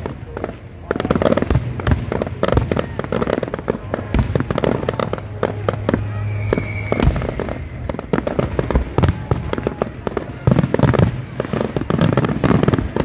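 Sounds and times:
fireworks bursting and crackling: 0.0 - 13.0
high firework whistle: 2.7 - 10.8.

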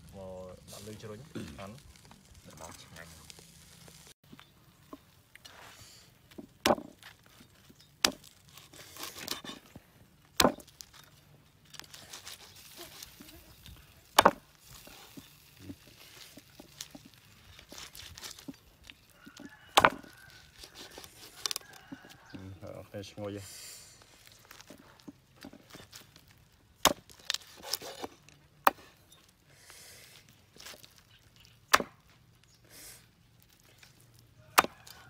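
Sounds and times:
cleaver chopping on wooden block: 6.6 - 6.9, 10.4 - 10.6, 14.2 - 14.4, 19.7 - 20.1, 31.7 - 32.0, 34.6 - 35.0.

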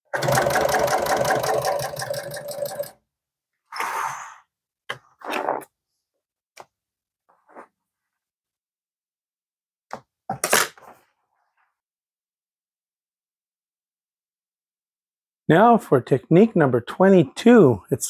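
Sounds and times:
sewing machine stitching: 0.0 - 3.0.

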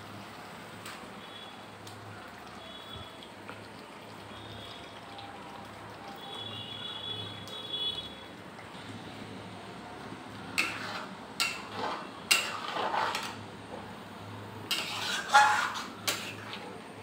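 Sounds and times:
metal spatula clanking and scraping: 10.6 - 13.4, 14.7 - 16.6.

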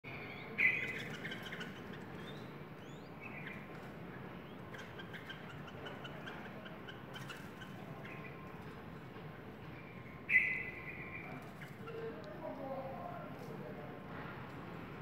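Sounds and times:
bulbul calling: 0.1 - 3.7, 4.3 - 8.4, 10.0 - 12.2
short repeated bird chirps: 10.2 - 11.3.

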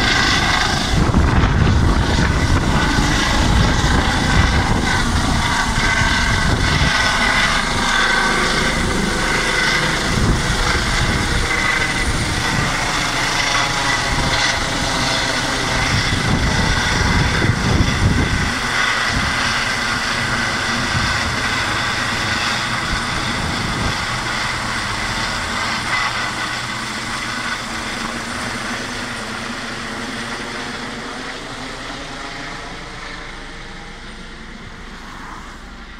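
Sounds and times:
helicopter low rumble: 0.0 - 35.9
helicopter turbine whine: 0.0 - 35.9.

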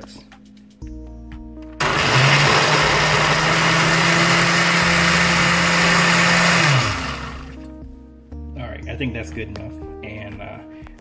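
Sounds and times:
blender motor running: 1.8 - 7.6.

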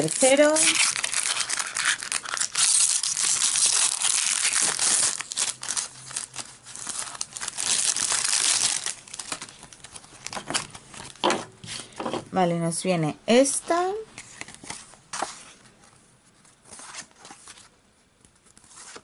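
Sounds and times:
foil packet crinkling: 0.0 - 11.2.

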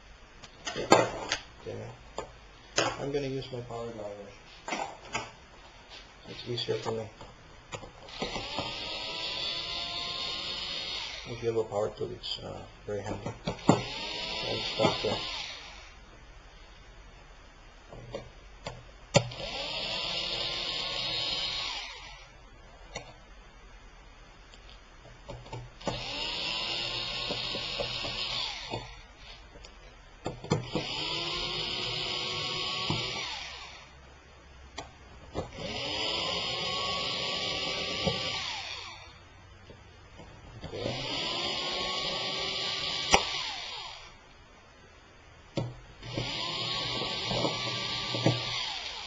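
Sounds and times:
power screwdriver running: 8.0 - 11.6, 13.5 - 15.9, 19.2 - 22.3, 25.8 - 29.1, 30.6 - 33.9, 35.4 - 39.1, 40.7 - 44.1, 46.0 - 49.0.

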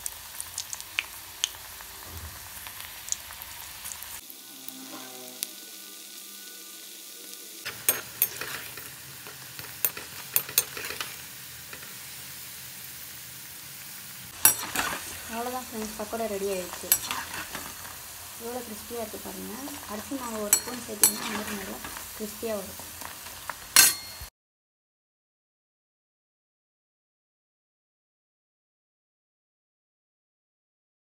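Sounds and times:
batter sizzling in hot oil: 0.0 - 24.3.

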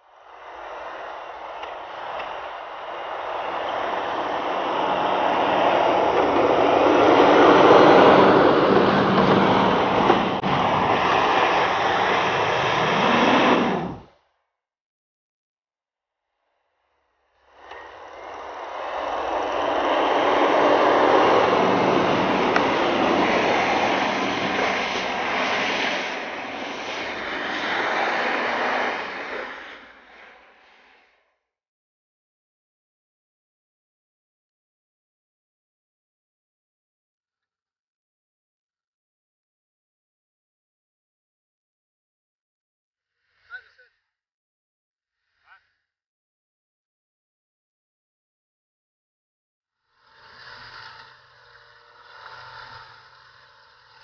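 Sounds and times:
engine working under load: 0.1 - 14.1, 17.5 - 30.6, 50.0 - 54.0
tyres churning snow: 0.2 - 14.1, 17.6 - 30.9, 50.4 - 54.0.

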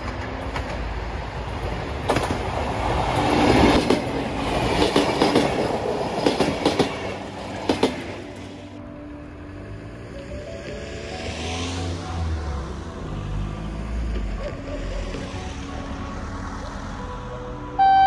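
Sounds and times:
wheels clacking over rail joints: 0.0 - 8.6
passenger train passing: 0.0 - 18.0.

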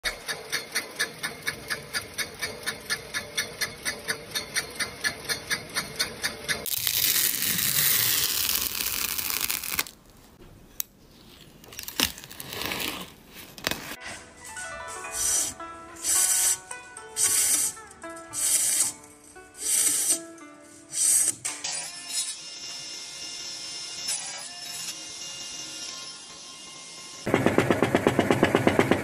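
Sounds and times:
capping machine rhythmic clicking: 0.0 - 6.7
constant machine hum: 0.0 - 6.7, 26.9 - 29.0
sharp ticks: 0.1 - 6.7
spatula scraping slime: 11.1 - 14.0.

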